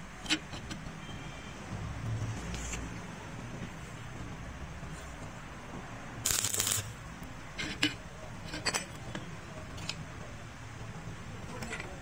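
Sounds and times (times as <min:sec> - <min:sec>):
metal tools clicking and knocking: 0:07.6 - 0:09.2.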